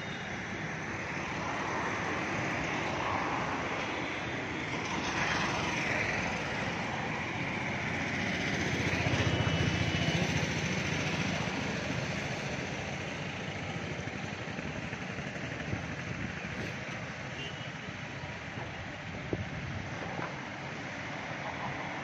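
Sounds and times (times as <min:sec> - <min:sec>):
road traffic passing: 0:00.0 - 0:22.0
close engine throbbing: 0:05.0 - 0:17.2.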